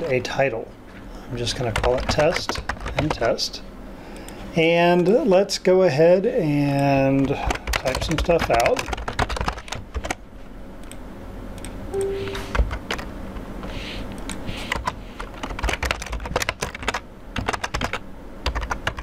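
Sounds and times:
computer keyboard typing: 1.6s - 3.3s, 7.2s - 10.2s, 11.6s - 13.0s, 14.7s - 19.0s.

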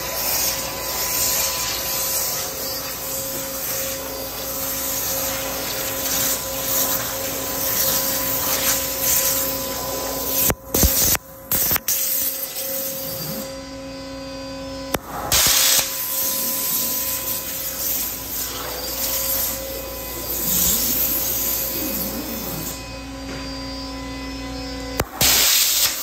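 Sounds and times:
waterjet hissing: 0.0s - 11.0s, 15.0s - 22.8s.

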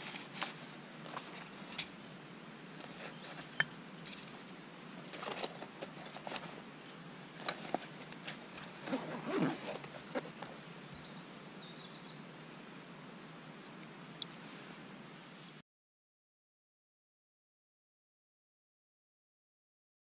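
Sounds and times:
cloth rustling: 7.4s - 10.6s.

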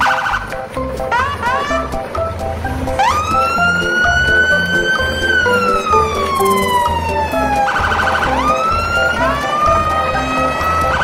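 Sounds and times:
background music with steady beat: 0.0s - 11.0s
siren wailing: 3.0s - 11.0s.

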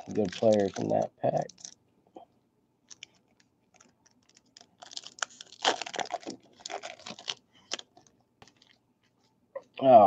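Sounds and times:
foil wrapper crinkling and tearing: 0.0s - 1.8s, 2.9s - 8.8s.

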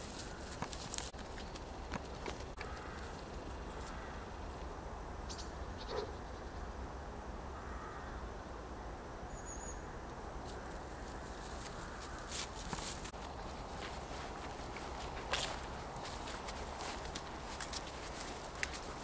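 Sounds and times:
light ticks and rustles: 0.0s - 4.7s, 10.1s - 19.0s.

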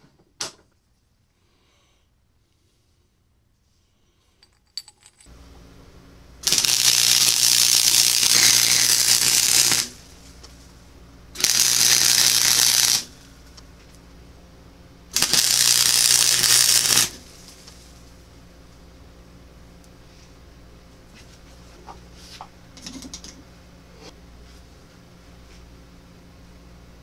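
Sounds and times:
welder low hum: 5.3s - 21.0s
welding arc crackling: 6.4s - 10.4s, 11.4s - 13.3s, 15.1s - 17.8s.

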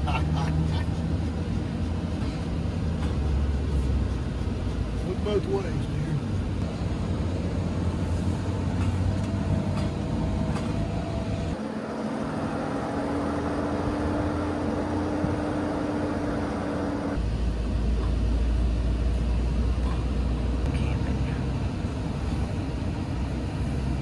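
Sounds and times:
van engine drone and rumble: 0.0s - 24.0s
higher engine tone: 6.1s - 19.7s.

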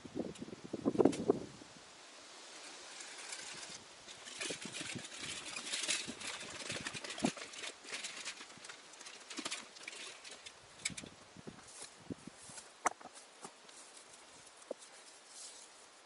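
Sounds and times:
footsteps on gravel: 11.6s - 15.3s
small knocks: 12.8s - 13.6s.

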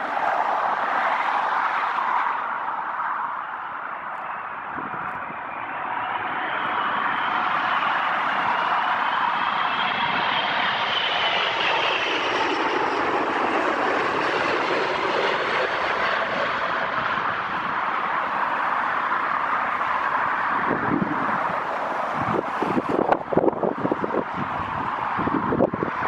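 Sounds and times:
jet aircraft passing with whine: 0.0s - 26.0s.

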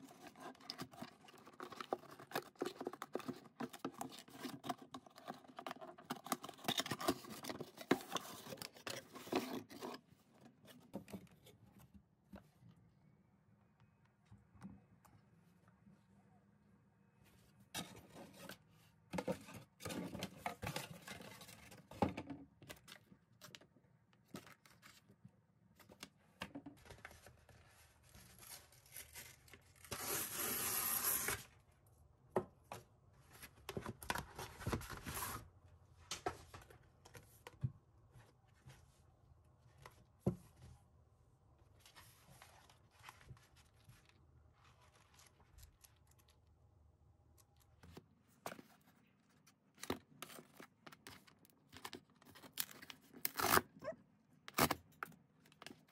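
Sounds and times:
cardboard rustling and scraping: 0.0s - 11.9s, 33.2s - 35.5s
cardboard tearing: 28.4s - 31.5s, 52.4s - 53.7s.

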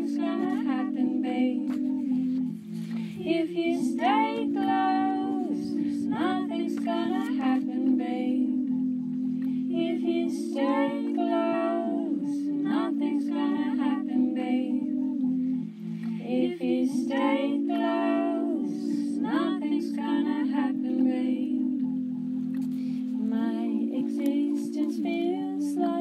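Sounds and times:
woman singing: 0.0s - 8.8s, 9.4s - 15.3s, 16.0s - 21.8s, 23.1s - 26.0s
sustained low accompaniment: 0.0s - 26.0s.

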